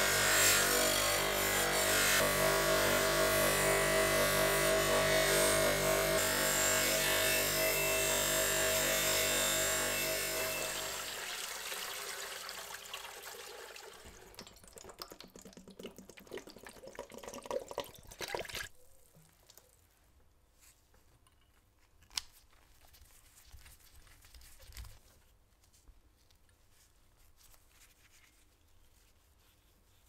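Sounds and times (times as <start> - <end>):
liquid poured into plastic tub: 11.1 - 19.8.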